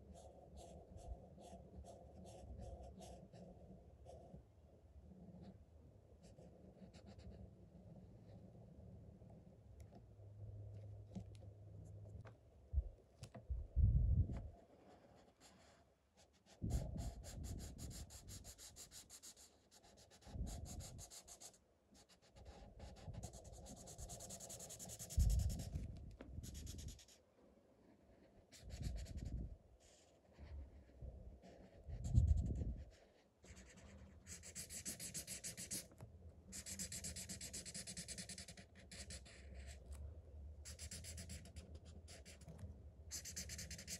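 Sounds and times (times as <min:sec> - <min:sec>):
marker scratching on paper: 0:00.0 - 0:03.5, 0:14.9 - 0:25.7, 0:26.4 - 0:27.2, 0:28.2 - 0:35.9, 0:36.5 - 0:39.8, 0:40.6 - 0:42.5, 0:43.1 - 0:43.9.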